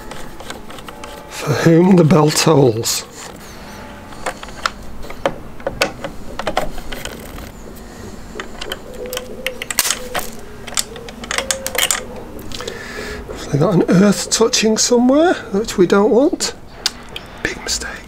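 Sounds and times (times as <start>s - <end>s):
screwdriver clicking on metal: 0.0s - 1.2s, 8.4s - 12.1s.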